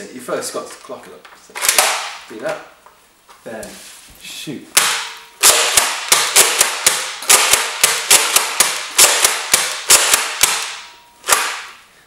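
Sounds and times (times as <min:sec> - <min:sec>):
dart blaster firing snaps: 0:04.8 - 0:11.8.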